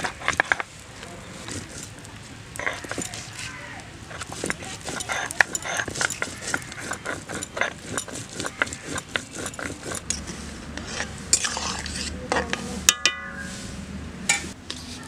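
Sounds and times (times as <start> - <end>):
stone grinder scraping on stone: 1.3 - 2.0, 2.6 - 12.6
ringing metal clang: 12.4 - 13.6.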